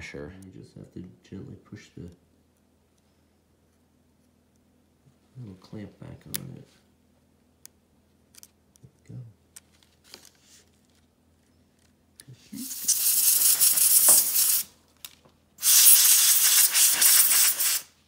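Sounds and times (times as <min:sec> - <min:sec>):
aerosol spray hissing: 0:12.6 - 0:14.7, 0:15.6 - 0:18.0.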